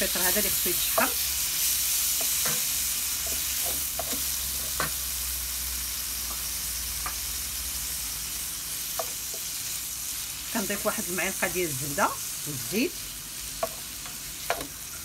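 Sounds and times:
vegetables sizzling in oil: 0.0s - 15.0s
wooden spoon scraping and tapping pan: 2.2s - 5.0s, 9.0s - 9.5s, 13.6s - 14.8s.

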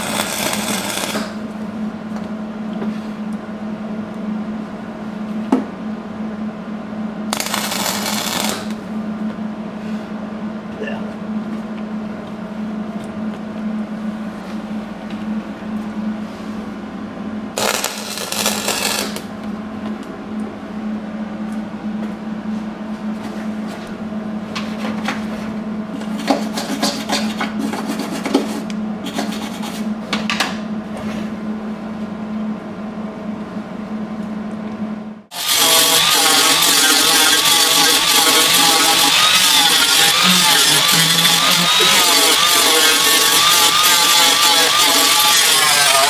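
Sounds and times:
angle grinder grinding steel: 0.0s - 1.4s, 7.4s - 8.8s, 17.6s - 19.2s, 35.3s - 46.0s
scraping on sheet metal: 35.3s - 46.0s
low hum: 35.6s - 45.3s.

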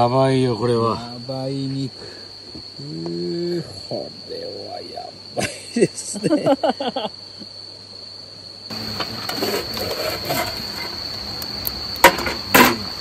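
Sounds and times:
metal lid clanking: 12.0s - 12.9s.

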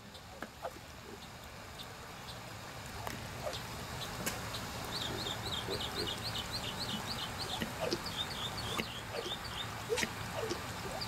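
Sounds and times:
bird chirping rapidly: 3.4s - 11.0s.

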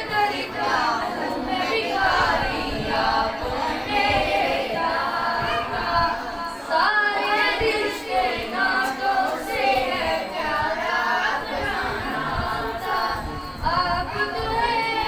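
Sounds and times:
boy singing into a microphone: 0.0s - 15.0s.

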